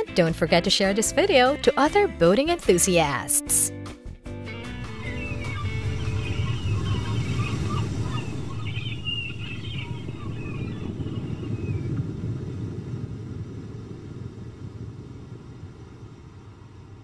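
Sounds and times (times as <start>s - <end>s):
birds chirping and warbling: 4.8s - 12.2s
steady low rumble: 4.8s - 17.0s.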